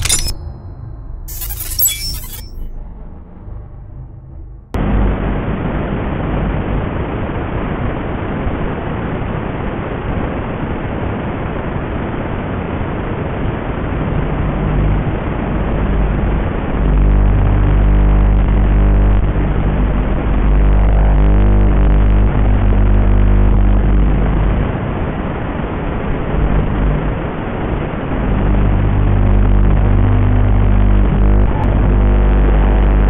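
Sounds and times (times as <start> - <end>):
electronic music: 0.0 - 2.7.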